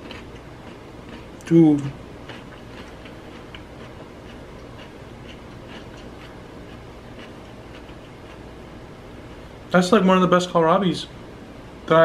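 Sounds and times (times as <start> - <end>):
person chewing crunchy vegetable: 0.0 - 8.5.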